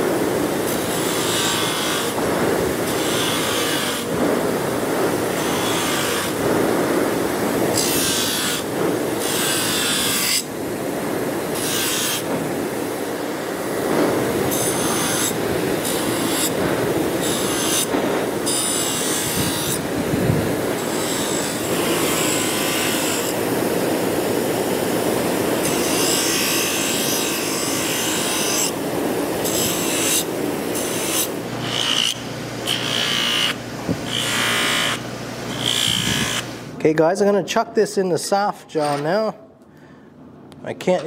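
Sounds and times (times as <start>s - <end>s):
bench grinder grinding metal: 0.7s - 2.2s, 2.8s - 4.2s, 5.2s - 6.4s, 7.7s - 10.5s, 11.6s - 12.3s, 14.5s - 16.6s, 17.2s - 19.8s, 20.8s - 23.4s, 25.6s - 28.7s, 29.4s - 36.5s.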